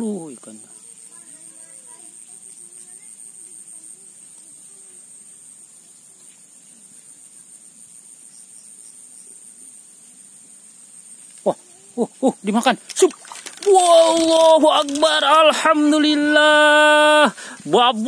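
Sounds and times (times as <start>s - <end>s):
faint voices: 12.9s - 17.1s.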